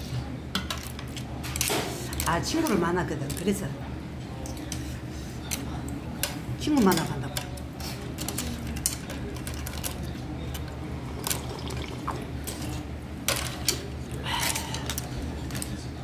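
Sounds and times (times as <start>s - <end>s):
slurping broth: 11.0s - 12.3s.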